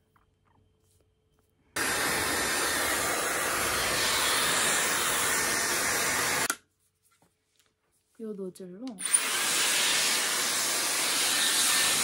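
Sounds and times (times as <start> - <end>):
hair dryer blowing: 1.8 - 6.5, 9.0 - 12.0.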